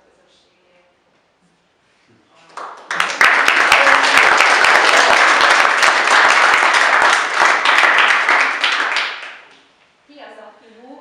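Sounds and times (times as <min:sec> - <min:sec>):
crowd applause: 0:02.5 - 0:09.5.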